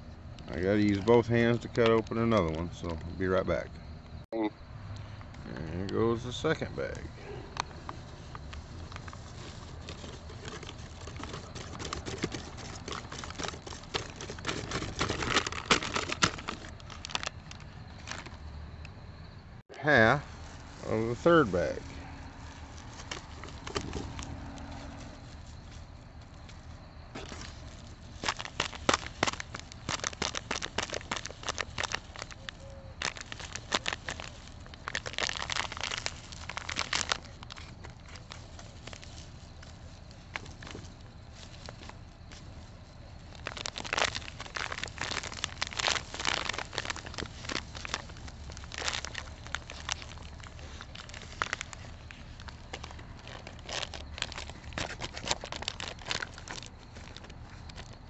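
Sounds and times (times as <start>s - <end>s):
plastic bag crackling: 7.7s - 18.4s, 20.3s - 58.0s
grains pattering on metal: 27.2s - 39.3s, 43.2s - 57.2s.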